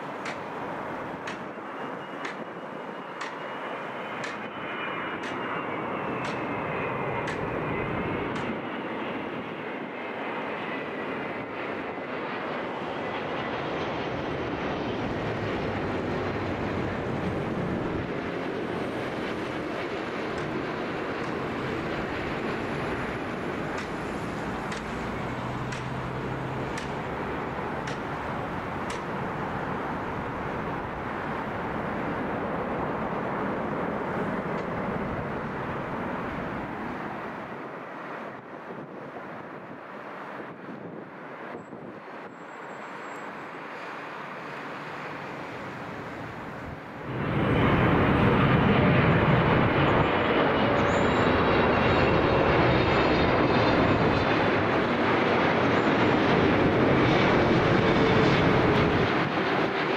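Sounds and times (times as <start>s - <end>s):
jet airliner engine whine: 0.0s - 59.9s
broad rushing noise: 15.0s - 42.3s, 43.3s - 59.9s.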